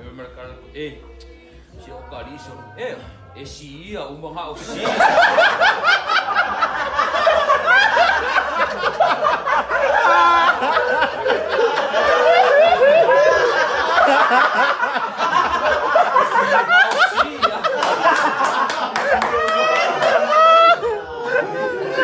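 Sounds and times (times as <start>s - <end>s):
men talking: 0.0s - 22.0s
group of men laughing: 4.6s - 22.0s.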